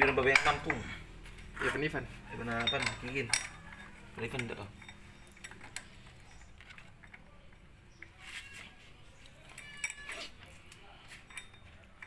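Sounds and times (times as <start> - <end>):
ringing metal clink: 2.4 - 5.7
faint metallic clicks and clinks: 2.4 - 8.2, 9.2 - 12.0.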